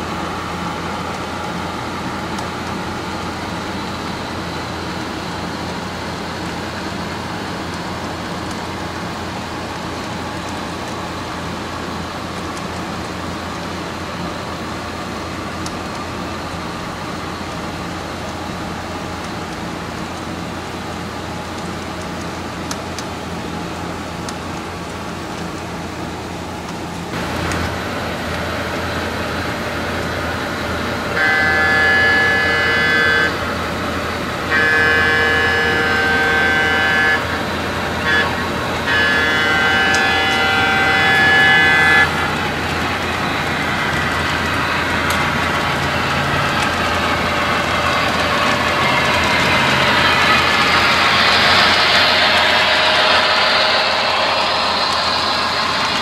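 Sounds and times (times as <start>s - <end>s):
model train rolling on track: 0.0s - 56.0s
steady running hum: 0.0s - 56.0s
model train air horn blasts: 31.0s - 56.0s.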